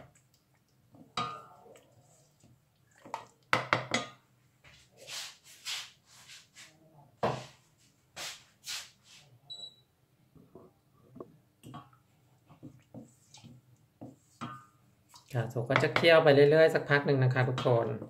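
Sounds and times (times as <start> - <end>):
wooden spoon knocking metal pot: 3.1 - 4.2, 15.7 - 16.1
spoon scraping swishes: 4.9 - 6.7.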